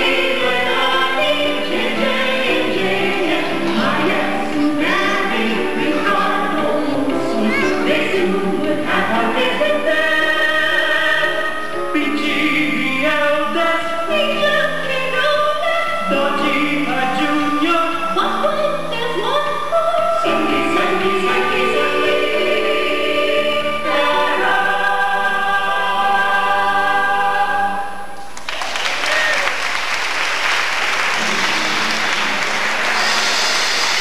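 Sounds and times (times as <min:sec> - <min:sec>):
group singing together: 0:00.0 - 0:18.2, 0:19.7 - 0:28.2.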